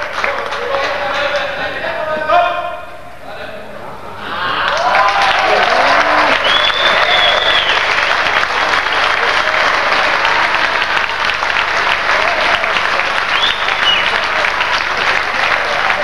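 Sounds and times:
crowd clapping: 0.0s - 1.7s, 4.4s - 16.0s
crowd voices: 0.0s - 16.0s.

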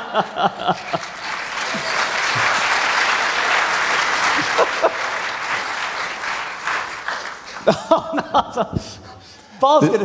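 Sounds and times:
laughter: 0.0s - 2.7s, 4.3s - 5.2s, 7.5s - 9.2s, 9.8s - 10.0s
congregation applauding: 0.0s - 8.3s.

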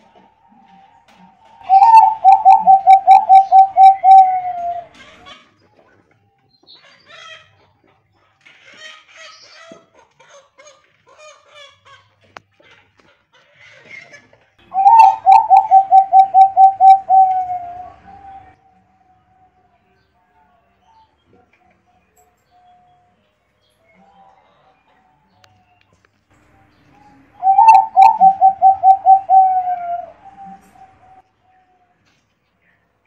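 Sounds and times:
dove cooing: 0.0s - 5.2s, 14.7s - 18.6s, 27.3s - 31.2s.

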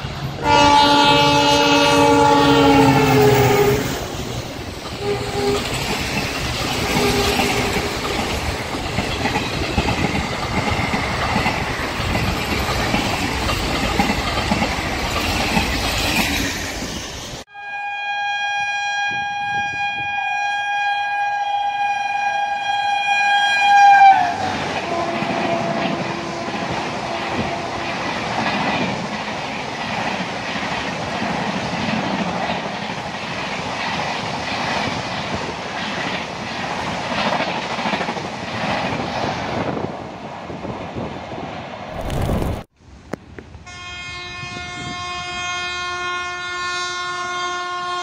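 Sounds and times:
train horn blast: 0.4s - 4.0s, 5.0s - 5.8s, 6.8s - 7.9s, 17.5s - 28.0s, 43.6s - 48.0s
train wheels clickety-clack: 2.7s - 17.1s, 24.5s - 39.9s.

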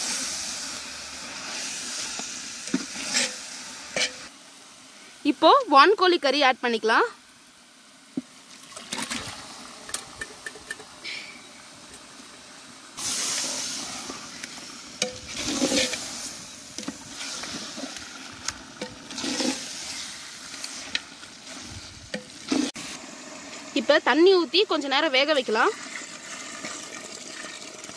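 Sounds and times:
meat sizzling in a pot: 0.0s - 27.9s
metal ladle scraping a pot: 2.7s - 4.3s, 15.0s - 16.1s, 18.8s - 20.0s.

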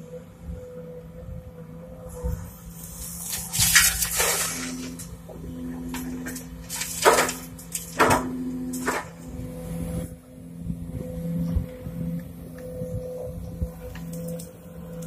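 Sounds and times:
excavator engine and hydraulics: 0.0s - 15.0s
soil pouring into metal truck bed: 3.2s - 5.1s.

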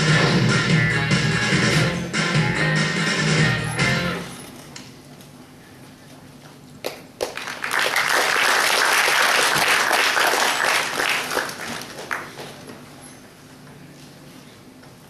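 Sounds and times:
audience applauding: 6.9s - 12.5s.

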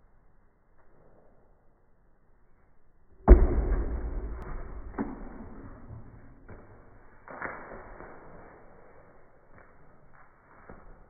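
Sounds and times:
deep ball bouncing thuds: 3.3s - 5.6s.

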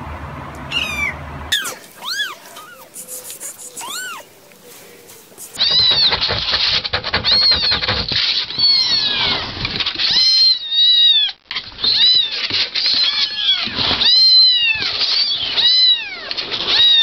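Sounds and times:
kittens mewing: 0.7s - 6.2s.

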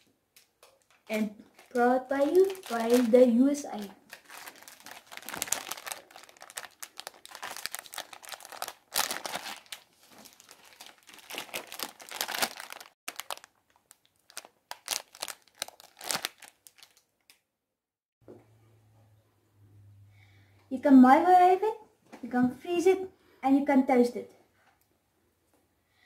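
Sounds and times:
foil wrappers crackling: 0.8s - 17.1s.

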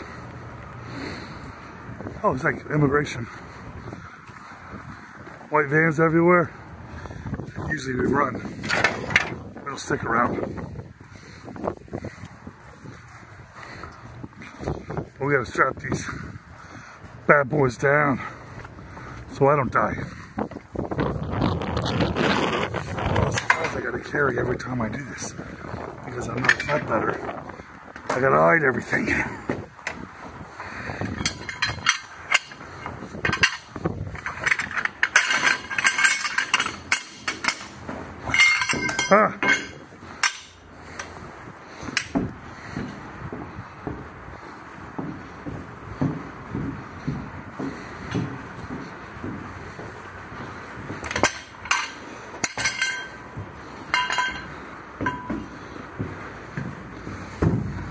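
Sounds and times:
metal hardware clanking on steel: 7.6s - 9.4s, 23.3s - 24.6s, 26.2s - 27.1s, 30.9s - 41.2s, 41.8s - 42.9s, 49.7s - 55.8s
metal plates clinking: 31.0s - 41.1s, 50.9s - 55.6s.

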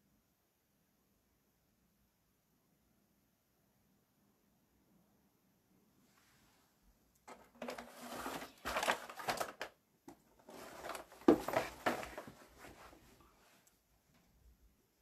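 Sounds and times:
rustling and clattering handling noise: 7.2s - 14.4s.

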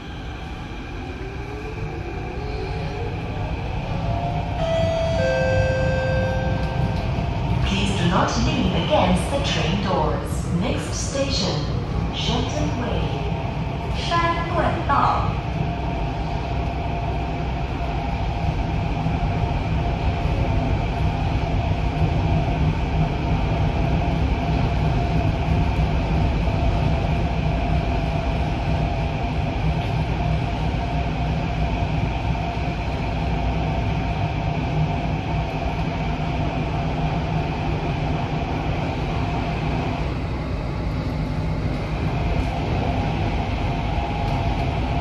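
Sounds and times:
constant hum: 0.0s - 45.0s
train wheels rumbling on rail: 0.0s - 45.0s.

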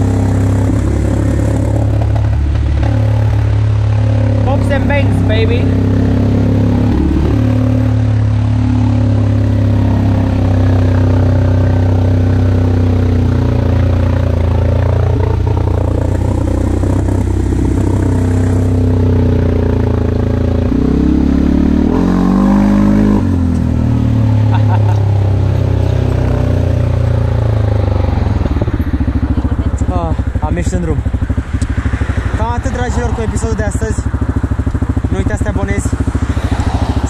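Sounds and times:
atv engine running: 0.0s - 37.0s.

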